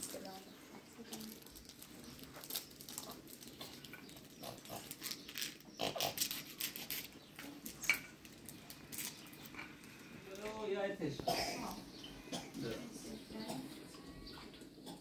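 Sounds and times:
small clicks and rustles: 0.0 - 10.6
small children vocal noises: 11.3 - 15.0.

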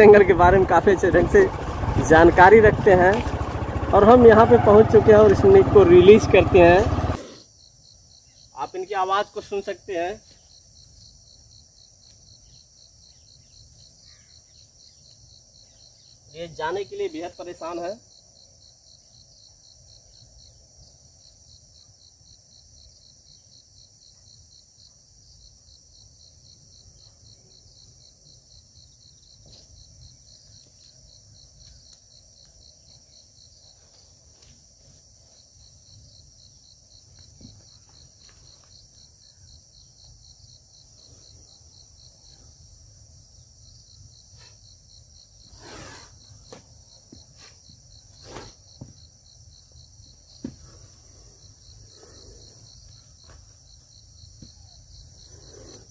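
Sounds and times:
crickets chirring: 0.0 - 55.9.

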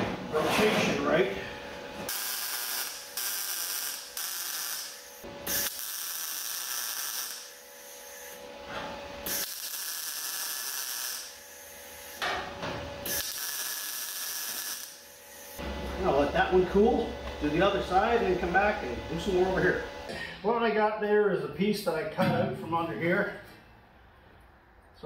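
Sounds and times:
arc welder sizzling and crackling: 1.9 - 20.0.

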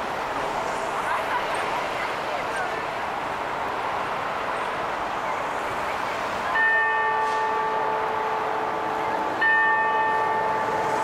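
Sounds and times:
city traffic noise: 0.0 - 11.0
clock tower bell striking: 6.5 - 11.0.

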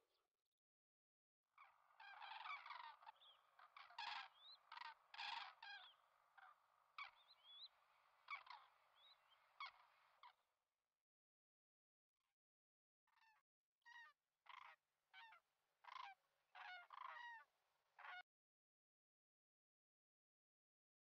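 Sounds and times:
cranes honking calls: 2.0 - 7.1.

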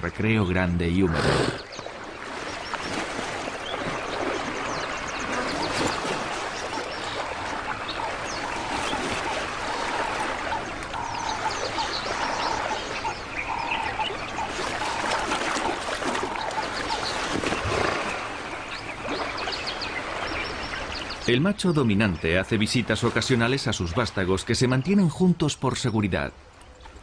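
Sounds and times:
birds chirping: 0.0 - 27.0
water sloshing and splashing: 1.2 - 21.3.

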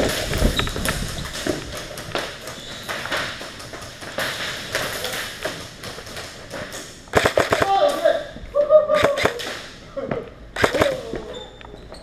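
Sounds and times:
footsteps running on concrete: 0.0 - 6.7.

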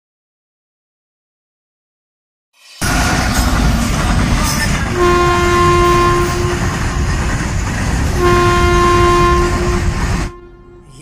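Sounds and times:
freight train rumble: 2.6 - 11.0
locomotive horn blast: 4.4 - 7.1, 8.2 - 11.0.

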